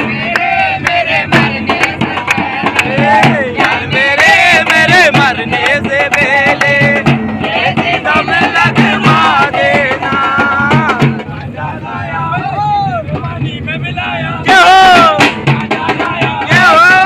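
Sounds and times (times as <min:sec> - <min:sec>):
drum struck with a stick: 0:00.0 - 0:11.5, 0:14.5 - 0:17.0
men singing together: 0:00.0 - 0:17.0
hand clapping: 0:00.3 - 0:07.2.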